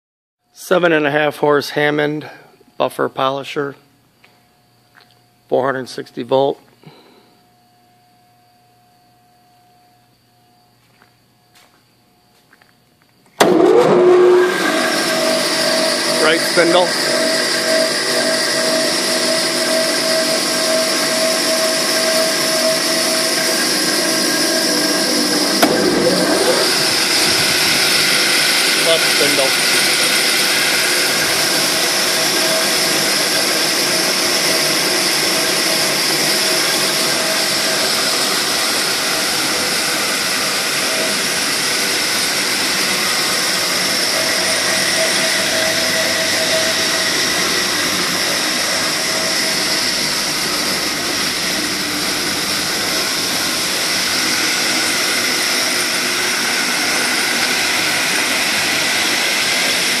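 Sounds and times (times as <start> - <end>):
polishing lathe motor humming: 13.4 - 60.0.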